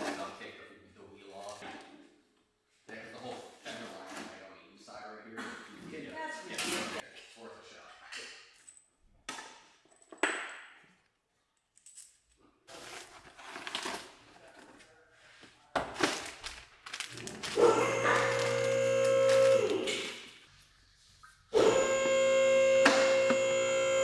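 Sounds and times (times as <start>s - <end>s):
plastic wrapping crinkling: 16.0s - 19.9s.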